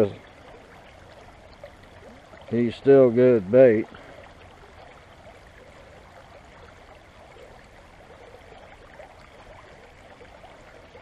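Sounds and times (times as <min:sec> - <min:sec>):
creek water running over rocks: 0:00.0 - 0:11.0.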